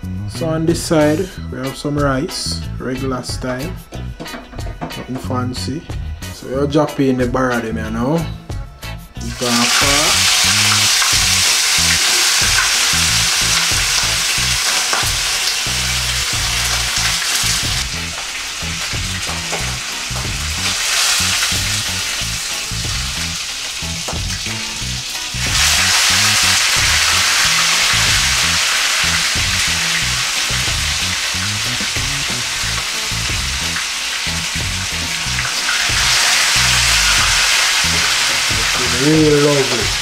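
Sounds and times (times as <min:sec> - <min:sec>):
fish sizzling in hot oil: 0:09.3 - 0:40.0.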